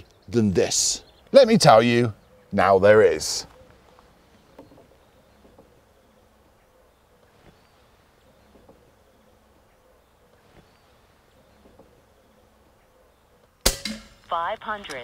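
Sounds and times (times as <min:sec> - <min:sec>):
air rifle shot: 0:13.6 - 0:14.3.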